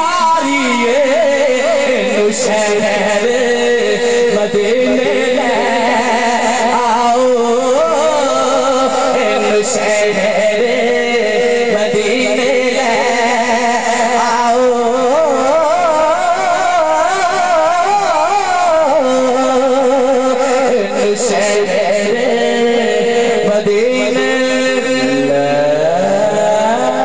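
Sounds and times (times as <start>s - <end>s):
man singing devotional song: 0.0s - 27.0s.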